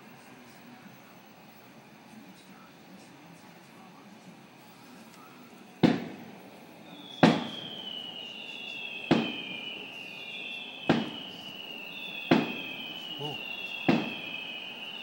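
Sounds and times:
fireworks whistling downward: 4.8s - 15.0s
fireworks booming: 5.6s - 15.0s.

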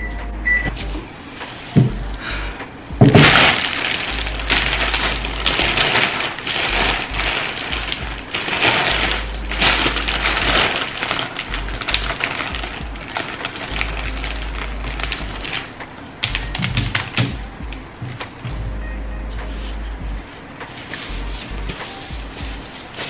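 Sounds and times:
packaging crinkling: 3.0s - 17.4s.

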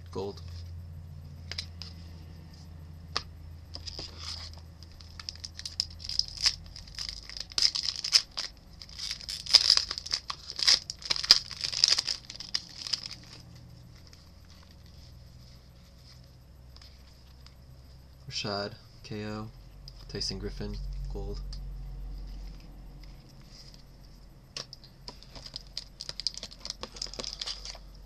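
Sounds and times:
foil wrapper crinkling: 3.7s - 16.3s, 24.6s - 28.0s.

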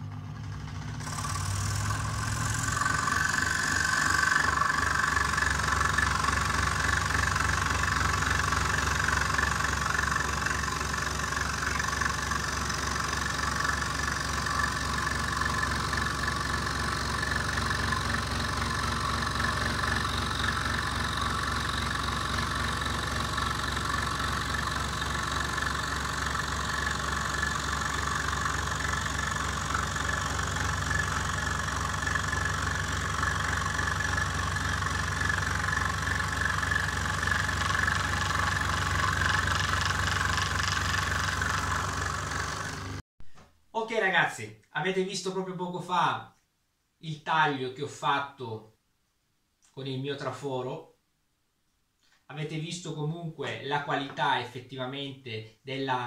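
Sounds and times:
motor hum: 0.0s - 43.0s
saw blade scratching wood: 0.8s - 43.0s.

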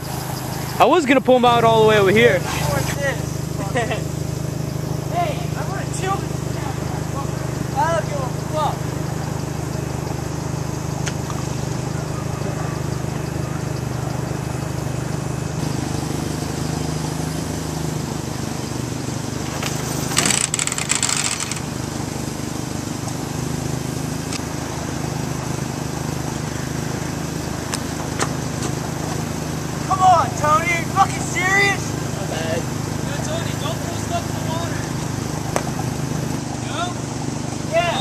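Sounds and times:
deeper engine note: 0.0s - 19.6s
engines idling: 0.0s - 38.0s.

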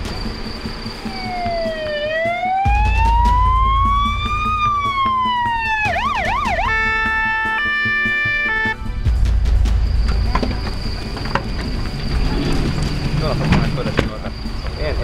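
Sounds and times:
emergency vehicle siren: 0.0s - 8.9s.

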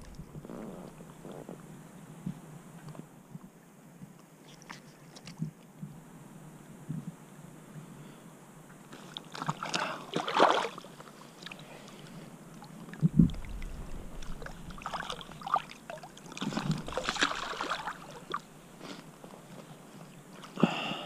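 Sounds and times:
water splashing and sloshing: 9.0s - 20.6s
low thump: 13.0s - 15.2s.

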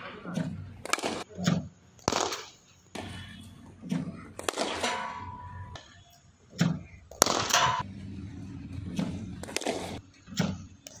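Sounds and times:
cricket bat striking ball: 7.1s - 7.8s.

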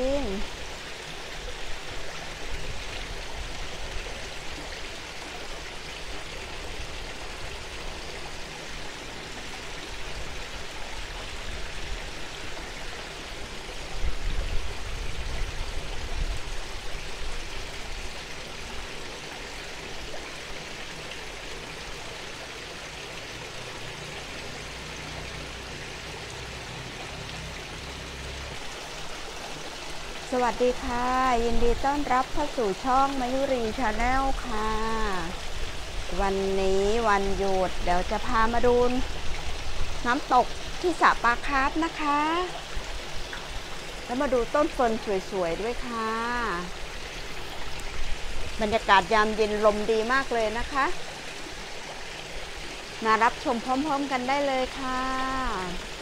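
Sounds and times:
waterfall splashing into pond: 0.0s - 56.0s.

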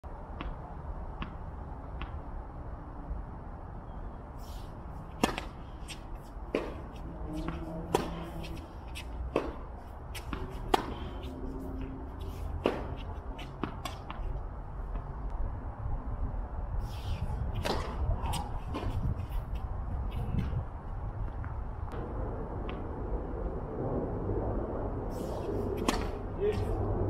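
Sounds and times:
low steady rumble: 4.9s - 27.0s
rackets hitting tennis ball: 5.0s - 15.1s, 17.4s - 20.6s, 25.8s - 26.7s.

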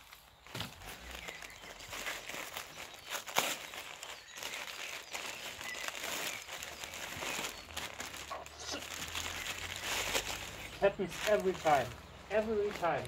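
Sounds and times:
newspaper rustling: 0.0s - 13.0s
plastic bag crinkling: 0.0s - 13.0s.

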